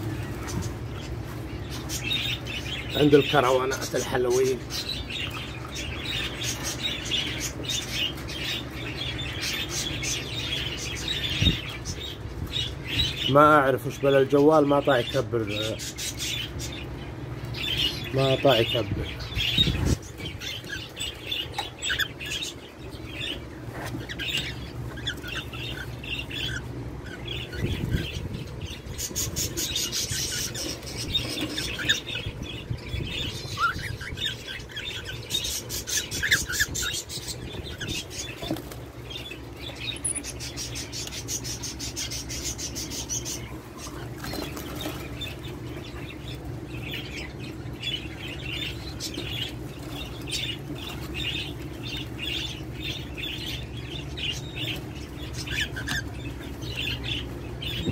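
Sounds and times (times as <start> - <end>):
bird chirps and calls: 0.0 - 57.9
birds flapping wings: 44.1 - 45.2.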